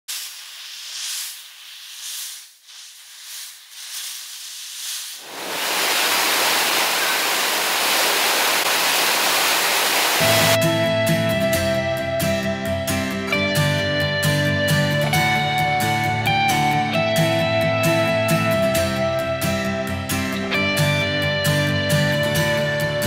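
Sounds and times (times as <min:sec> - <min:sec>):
thin hissing rush: 0:00.0 - 0:10.6
waterfall rushing: 0:05.2 - 0:10.6
plucked guitar music: 0:10.2 - 0:23.0.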